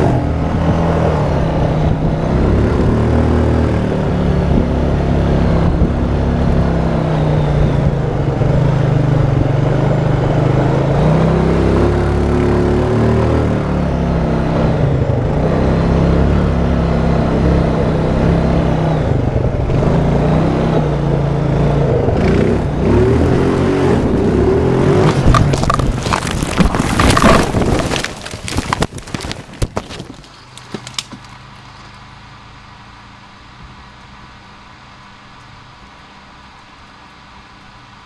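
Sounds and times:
atv engine running: 0.0s - 38.0s
vehicle tumbling crashes: 24.9s - 31.6s.

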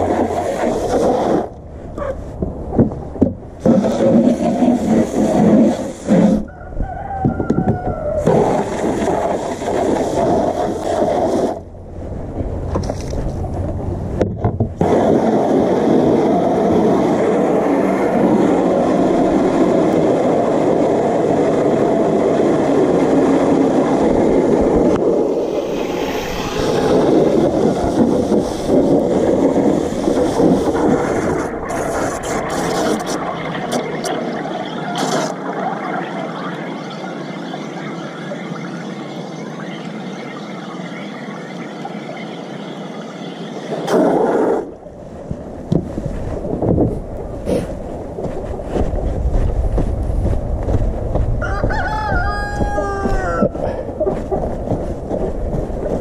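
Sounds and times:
hose water splashing into tub: 3.6s - 6.4s, 8.2s - 11.6s, 25.3s - 36.1s.

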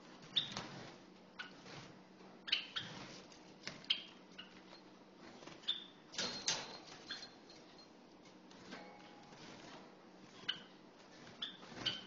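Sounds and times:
sparrow chirping: 2.4s - 2.9s.

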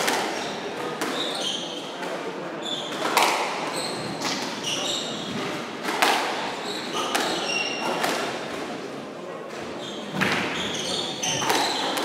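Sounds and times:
shoes squeaking on wooden floor: 3.7s - 5.6s, 6.5s - 8.0s, 9.7s - 12.0s.

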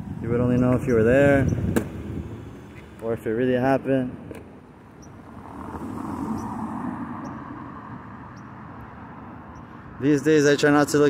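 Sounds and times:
traffic hum: 0.0s - 11.0s
vehicle passing by: 5.1s - 11.0s.

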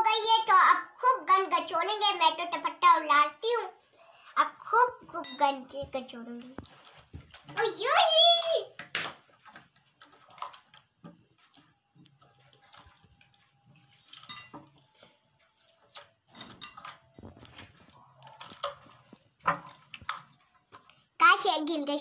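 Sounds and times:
hands squishing slime: 16.8s - 20.9s.

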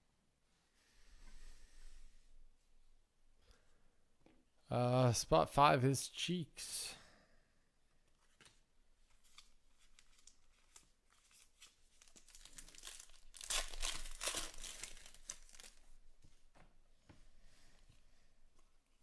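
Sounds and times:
wrapper tearing and crinkling: 9.2s - 15.8s.

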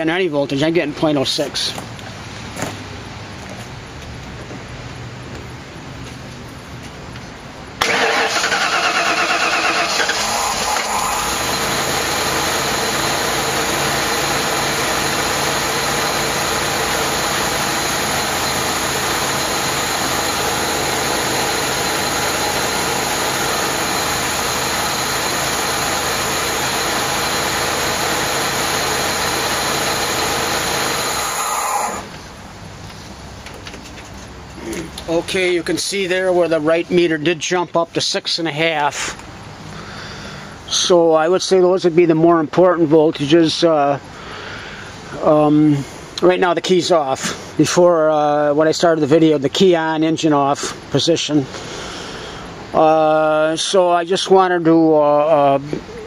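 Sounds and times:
van engine starting and running: 7.7s - 33.1s.

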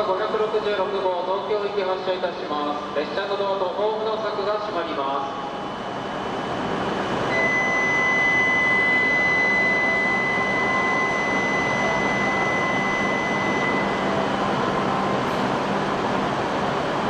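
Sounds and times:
high electronic warning tone: 5.3s - 16.3s
train noise: 9.7s - 17.0s.

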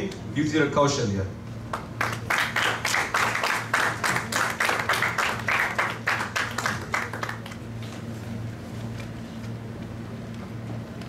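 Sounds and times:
audience applauding: 1.7s - 8.0s.

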